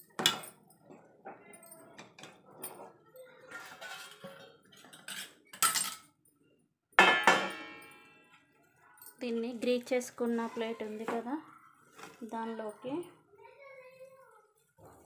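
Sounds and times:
spatula scraping a steel pan: 3.5s - 5.3s
steel plate clanging: 7.0s - 8.2s.

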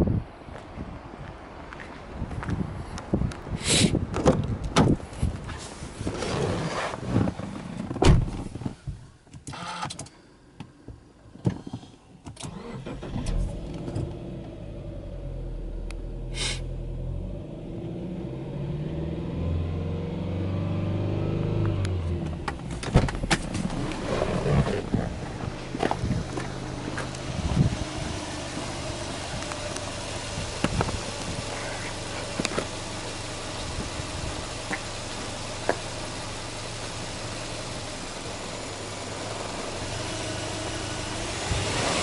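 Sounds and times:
car engine starting and idling: 4.2s - 42.0s.

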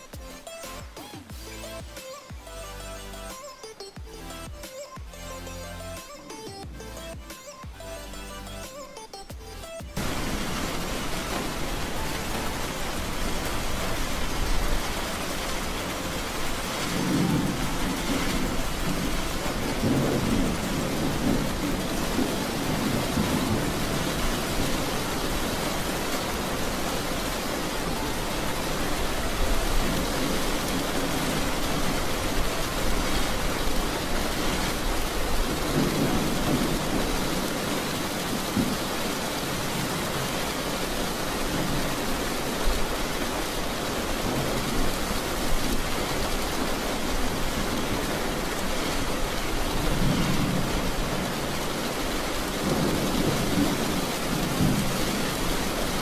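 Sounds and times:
heavy rain on car roof: 10.0s - 56.0s
tyres on flooded road: 10.0s - 56.0s.

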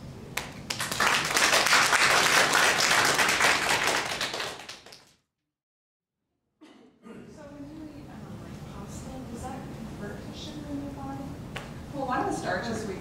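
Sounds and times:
audience applauding: 0.4s - 5.1s.

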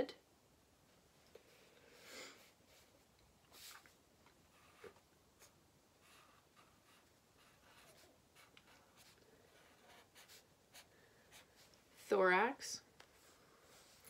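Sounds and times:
marker scratching on paper: 4.5s - 12.2s.

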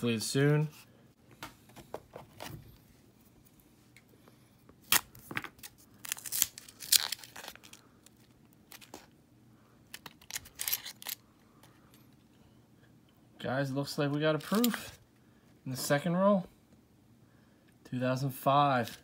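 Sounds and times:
paper wrapper tearing and crinkling: 4.8s - 9.1s, 14.3s - 15.0s.

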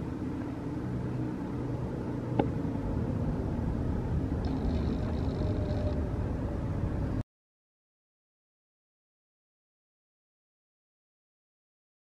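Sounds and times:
low outdoor rumble: 0.0s - 7.2s.

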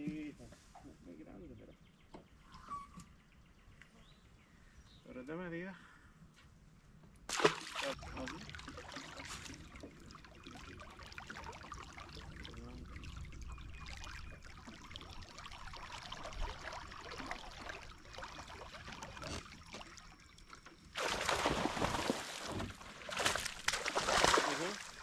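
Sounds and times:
small waves lapping against hull: 7.3s - 25.0s.

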